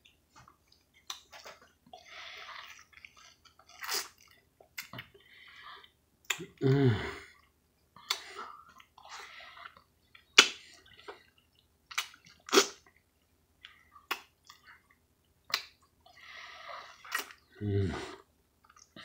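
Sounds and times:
person chewing juicy fruit: 0.0s - 19.0s
mouth smacks and slurps: 2.4s - 5.2s, 7.4s - 13.0s, 13.6s - 16.0s, 16.8s - 17.5s.

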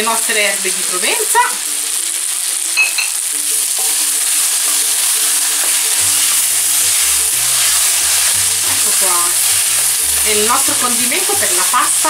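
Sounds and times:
soft background music: 0.0s - 12.0s
vegetables sizzling in a wok: 0.0s - 12.0s
wooden spoon stirring: 4.3s - 12.0s.

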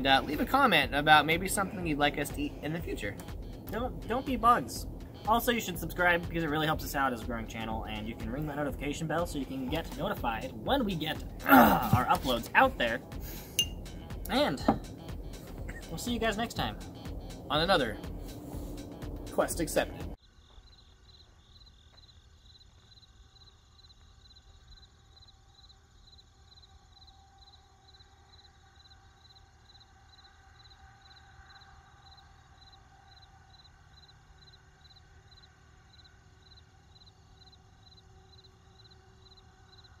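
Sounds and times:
insect chirping: 20.2s - 40.0s.

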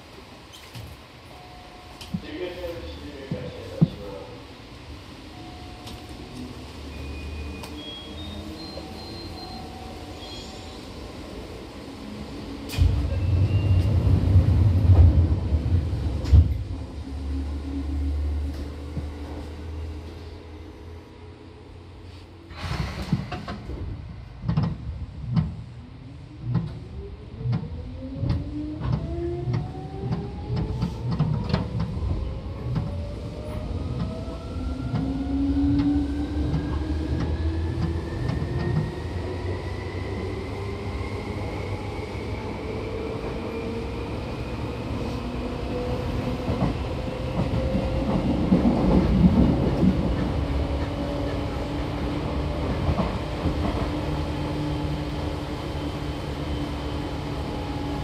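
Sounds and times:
rail-joint clicks: 12.7s - 13.2s, 22.6s - 23.8s, 24.4s - 25.6s, 27.4s - 33.0s, 35.7s - 38.9s.

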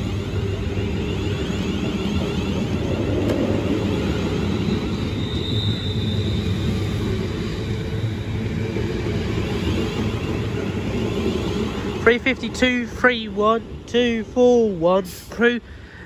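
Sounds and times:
rising electric whine: 0.0s - 9.2s
train wheels rumbling on rails: 0.0s - 16.0s.

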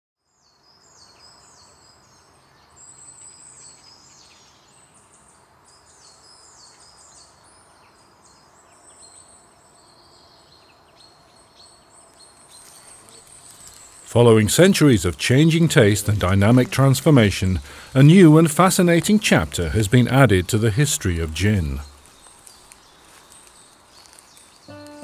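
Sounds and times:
small birds chirping: 0.3s - 25.0s
soft background hiss: 11.9s - 25.0s.

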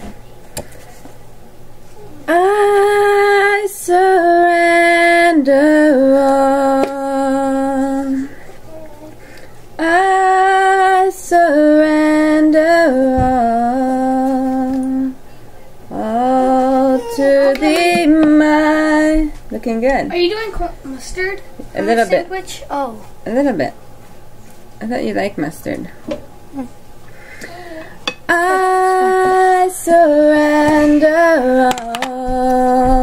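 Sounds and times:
woman singing unaccompanied: 2.2s - 8.4s, 9.8s - 15.2s, 15.9s - 20.0s, 28.2s - 33.0s.

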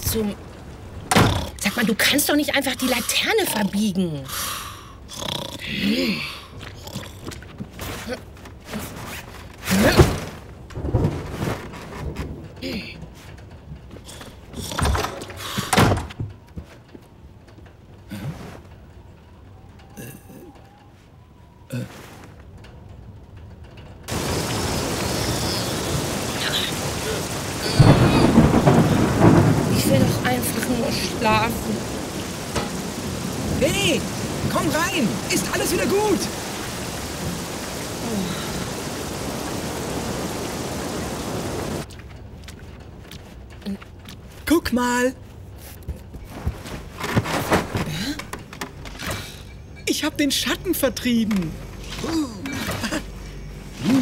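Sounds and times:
thunder rumbling: 0.0s - 3.5s, 10.5s - 16.5s, 24.0s - 41.9s
heavy rain falling: 0.0s - 4.3s, 5.6s - 16.0s, 24.0s - 45.0s, 46.8s - 54.0s
cartoon creature snoring: 5.1s - 6.2s.

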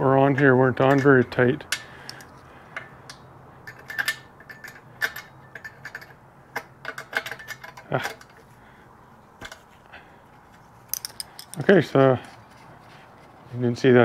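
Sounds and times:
metal tools clinking: 0.2s - 8.5s, 9.4s - 9.8s, 10.4s - 12.0s.

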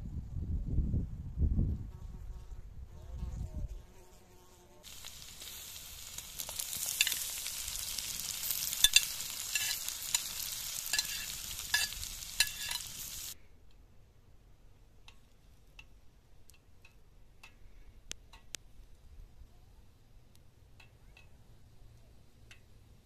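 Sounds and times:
tomatoes sizzling in oil: 4.8s - 13.4s
knife scraping a plate: 8.9s - 9.8s, 10.9s - 12.9s.

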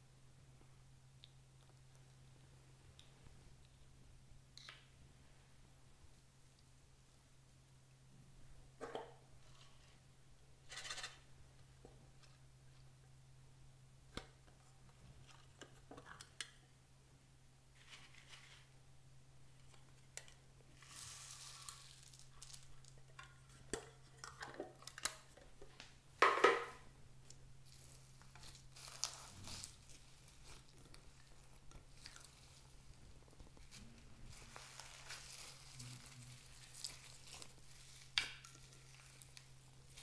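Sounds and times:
beads pattering into dish: 20.8s - 23.1s.

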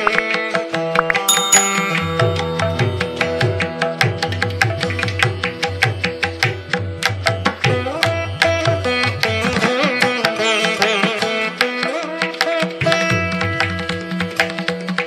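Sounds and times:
plucked string instrument melody: 1.3s - 5.6s.

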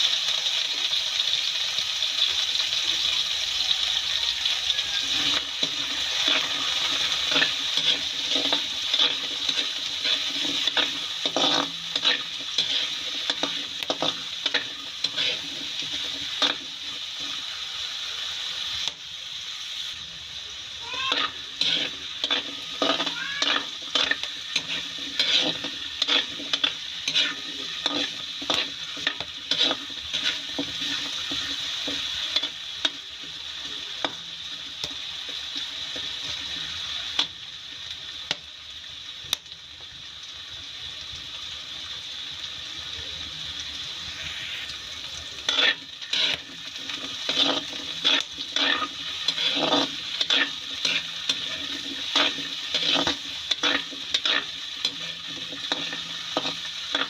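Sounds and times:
potatoes sizzling in a wok: 0.0s - 57.0s
metal spatula scraping a wok: 4.7s - 17.6s, 20.8s - 35.0s, 44.2s - 57.0s.

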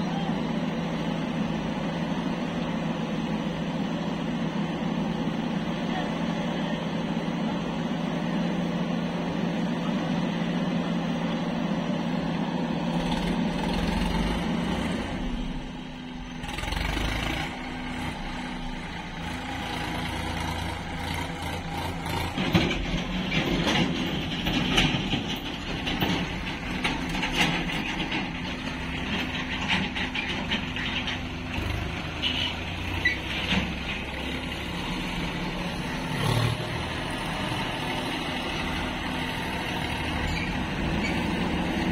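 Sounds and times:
diesel engine under load: 0.0s - 41.9s
metal clanks and knocks: 22.2s - 34.2s.

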